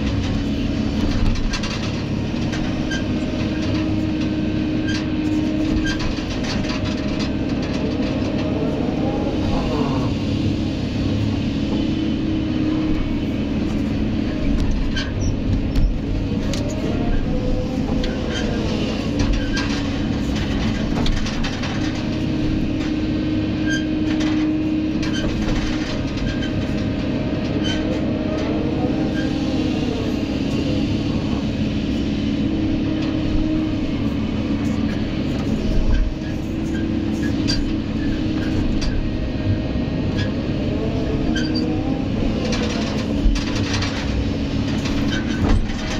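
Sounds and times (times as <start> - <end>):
knocks and clanks: 0.0 - 8.6, 13.7 - 23.0, 23.7 - 28.6, 42.3 - 45.9
excavator engine and hydraulics: 0.0 - 45.9.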